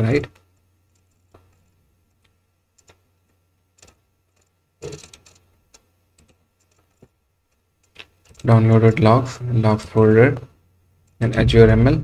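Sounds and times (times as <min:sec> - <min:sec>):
faint low hum: 0:00.0 - 0:12.0
computer mouse clicks: 0:00.3 - 0:03.0.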